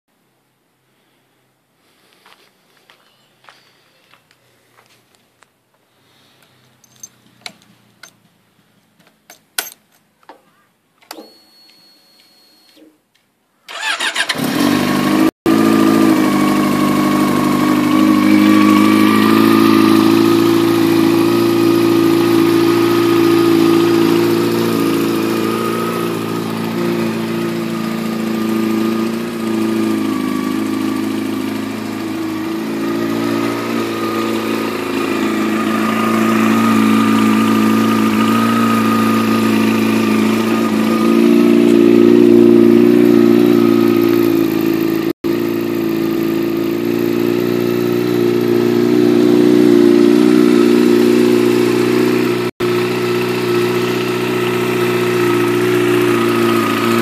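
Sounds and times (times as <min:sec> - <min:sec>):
motorcycle starter cranking: 0:13.7 - 0:15.0
motorcycle engine idling: 0:13.7 - 0:57.0.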